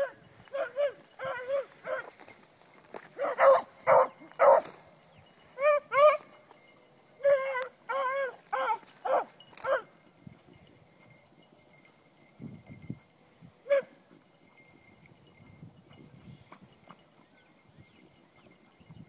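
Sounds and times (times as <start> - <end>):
dogs baying: 0.0 - 2.3, 3.1 - 4.8, 5.6 - 6.4, 7.2 - 9.9.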